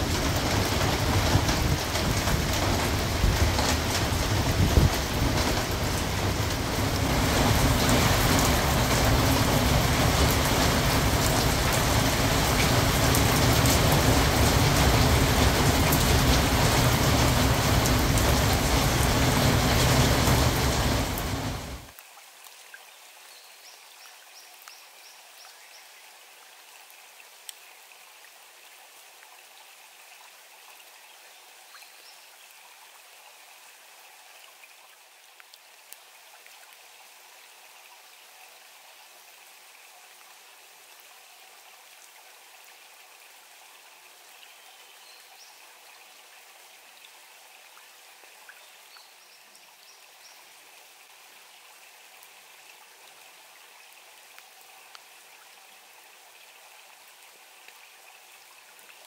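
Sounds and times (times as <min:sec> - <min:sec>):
raindrop ticks: 0:00.0 - 0:22.1
rain falling on plants: 0:00.0 - 0:59.0.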